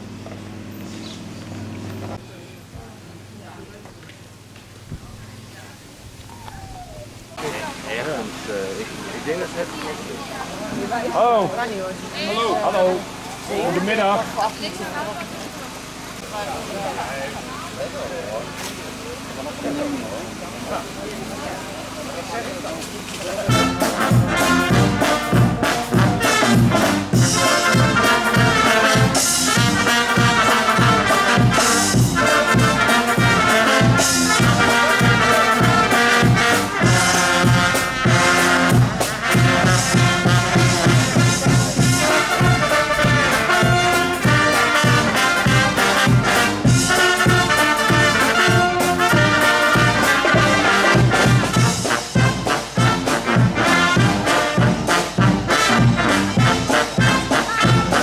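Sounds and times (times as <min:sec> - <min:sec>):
trumpets and trombones playing: 0:23.4 - 0:58.0
bass drum beat: 0:23.5 - 0:58.0.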